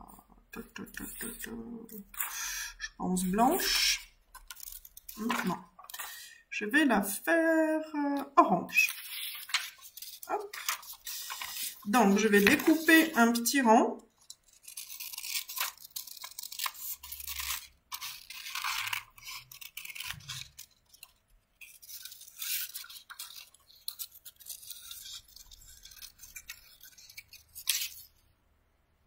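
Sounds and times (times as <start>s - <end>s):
scissors snipping paper: 3.2s - 6.2s, 8.2s - 28.1s.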